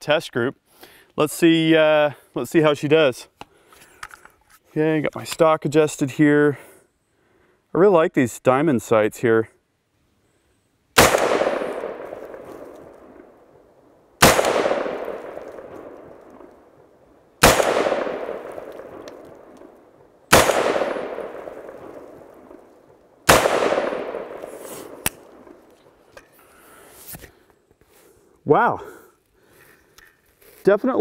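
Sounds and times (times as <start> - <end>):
rifle shots echoing: 11.0 - 13.5, 14.2 - 16.8, 17.4 - 25.7.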